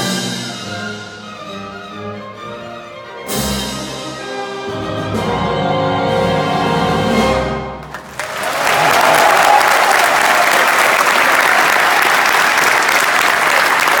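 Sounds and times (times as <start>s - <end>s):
audience applause: 7.8s - 14.0s.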